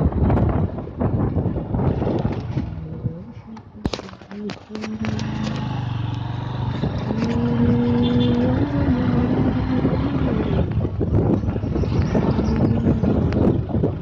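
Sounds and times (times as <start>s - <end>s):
wind noise: 0.0s - 14.0s
small vehicle engine running: 4.8s - 10.6s.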